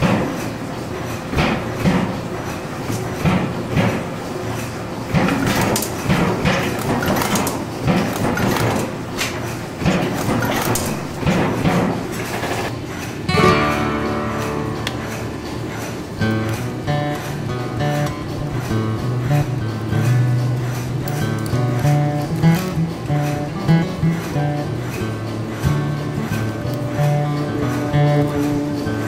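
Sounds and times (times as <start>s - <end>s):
machine clatter: 0.0s - 29.0s
machine forming strokes: 0.0s - 29.0s
acoustic guitar music: 13.3s - 29.0s.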